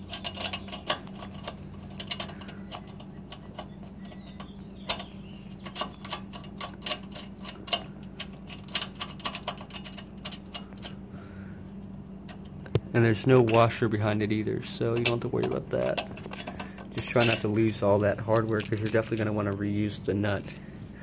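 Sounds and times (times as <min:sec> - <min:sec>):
metal clicks and taps: 0:00.0 - 0:11.0
low hum: 0:00.0 - 0:21.0.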